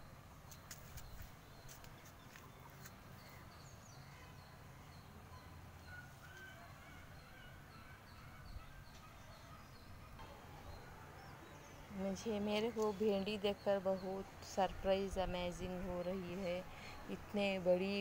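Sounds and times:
small bird chirping: 0.4s - 6.5s.

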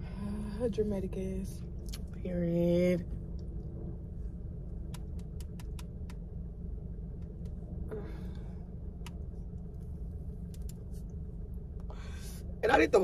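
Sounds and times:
faint hum: 0.0s - 13.0s
low rumble: 0.0s - 13.0s
faint sharp clicks: 4.9s - 6.2s.

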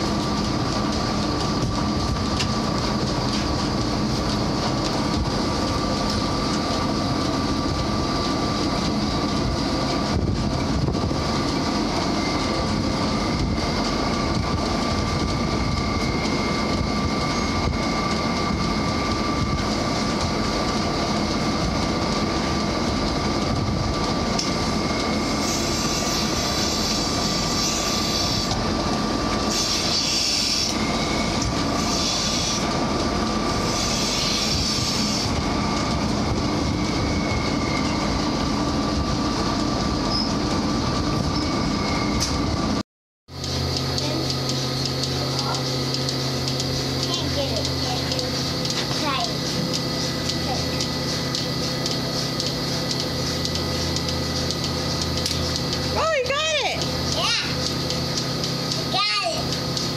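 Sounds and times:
high mechanical whine: 0.0s - 59.9s
milking machine vacuum drone: 0.0s - 59.9s.

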